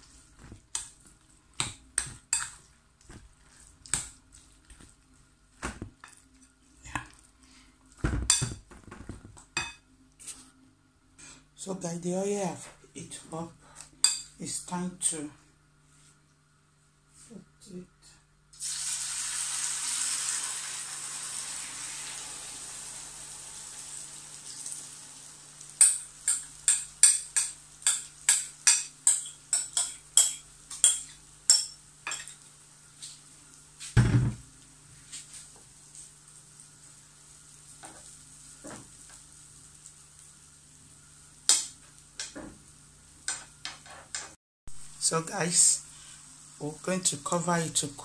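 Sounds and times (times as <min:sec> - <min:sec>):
food sizzling in hot oil: 0:18.5 - 0:43.6.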